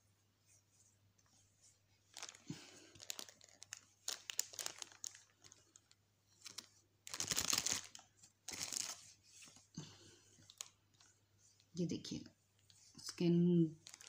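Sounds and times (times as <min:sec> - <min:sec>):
plastic wrapping crinkling: 0:02.1 - 0:09.1, 0:13.0 - 0:14.0.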